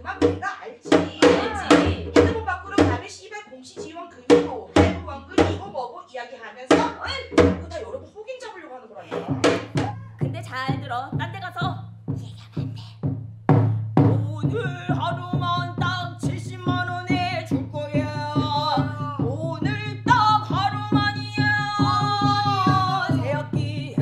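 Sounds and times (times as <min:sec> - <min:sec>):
drum strokes: 0:00.0 - 0:03.0, 0:09.1 - 0:24.0
woman singing: 0:00.9 - 0:03.9, 0:09.1 - 0:12.9, 0:17.9 - 0:24.0.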